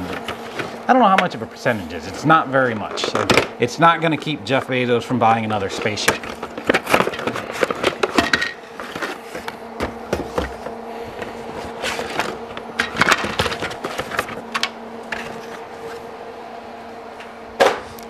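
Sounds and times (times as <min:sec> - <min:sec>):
metal parts clattering: 0:05.7 - 0:09.4.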